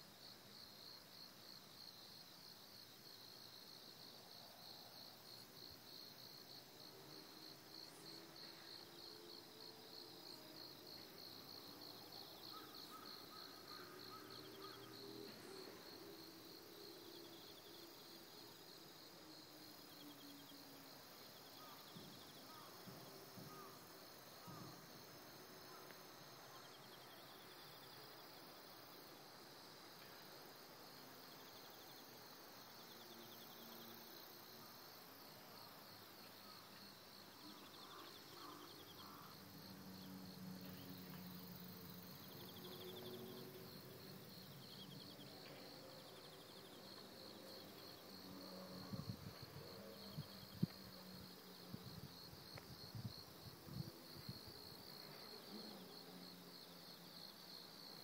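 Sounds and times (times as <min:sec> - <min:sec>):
crickets trilling: 0:04.6 - 0:28.0, 0:35.6 - 0:58.0.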